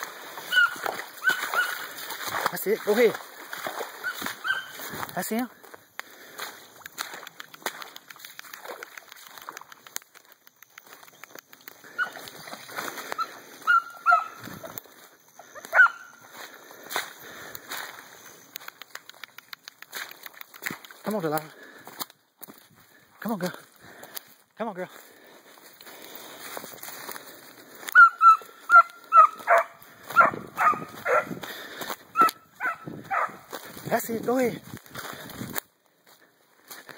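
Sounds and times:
leaves crunching underfoot: 0.0 - 5.4
puppy yelping: 0.4 - 1.9, 4.0 - 4.8, 11.9 - 12.3, 13.2 - 14.4, 15.5 - 16.2, 27.9 - 31.3, 32.1 - 33.4.

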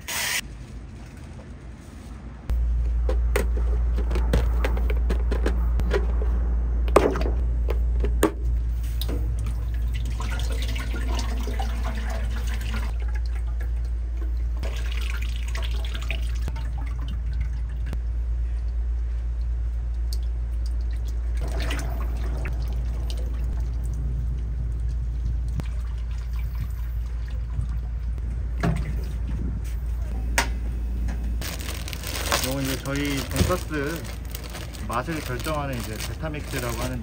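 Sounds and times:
low hum: 0.4 - 37.0
liquid pouring: 9.3 - 18.0, 19.9 - 28.2.

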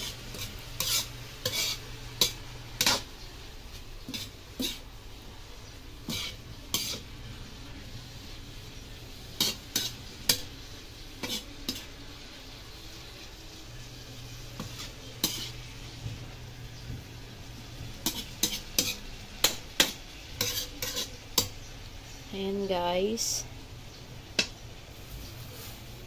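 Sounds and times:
metal spatula scraping a wok: 0.0 - 3.1, 3.7 - 4.9, 6.0 - 12.3, 12.9 - 15.9, 17.7 - 21.6.

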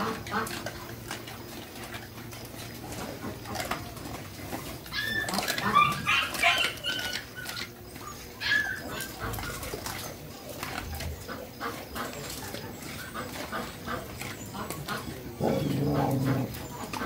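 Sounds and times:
dogs chewing and crunching: 0.0 - 17.0
dogs squealing and whining: 3.4 - 17.0.

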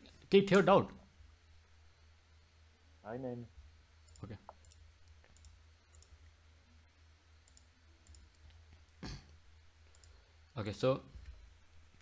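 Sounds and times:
low electrical hum: 0.0 - 12.0
faint clicks: 4.0 - 6.2, 7.4 - 9.0, 9.8 - 10.2.

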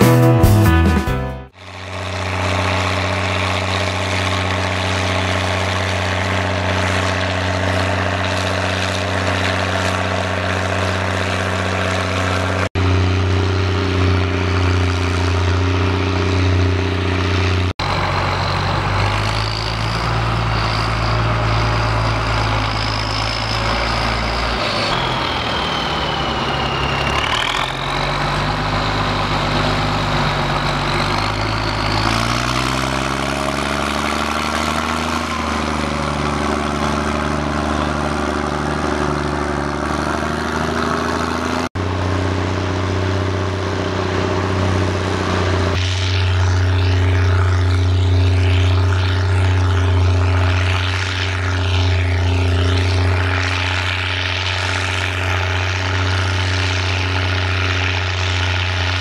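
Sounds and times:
tractor diesel engine under load: 0.0 - 59.0
high whine: 41.8 - 59.0.

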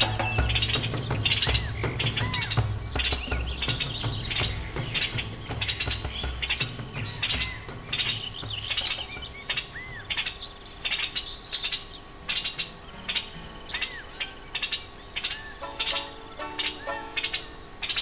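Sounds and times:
bird-like chirps: 0.0 - 18.0.

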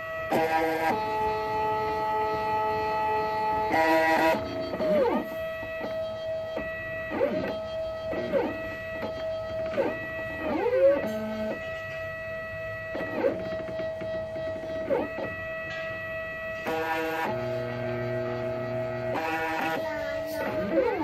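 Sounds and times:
stepper motors whining: 0.0 - 21.0.

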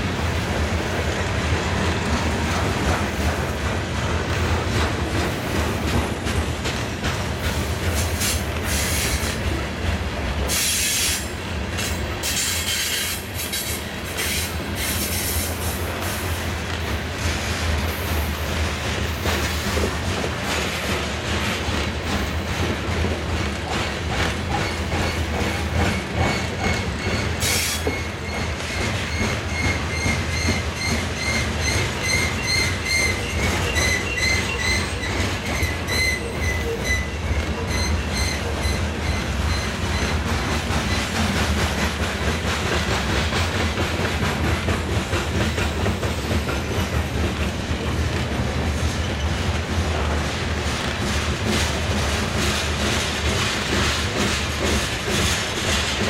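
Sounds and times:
freight train rumbling past: 0.0 - 56.0
wheels clicking on rails: 0.3 - 56.0
high-pitched wheel squeal: 26.2 - 40.1.

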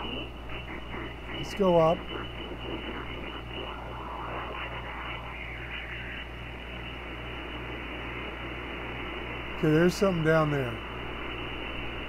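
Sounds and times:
low pulsing hum: 0.0 - 12.0
radio static and hiss: 0.0 - 12.0
weak radio station: 0.0 - 12.0.

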